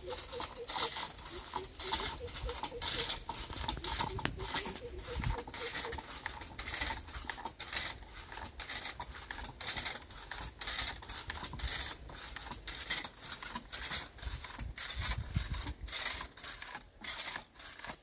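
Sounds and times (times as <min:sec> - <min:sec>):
climbing device scraping palm trunk: 0:00.0 - 0:18.0.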